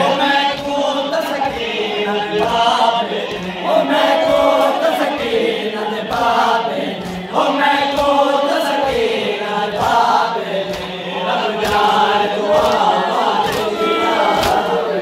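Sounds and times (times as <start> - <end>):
men chanting: 0.0 - 15.0
hands slapping chests: 7.0 - 9.0, 9.8 - 11.0, 11.6 - 14.8.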